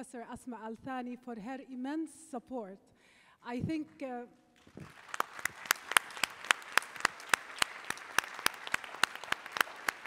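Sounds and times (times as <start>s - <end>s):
audience applauding: 4.6s - 10.0s.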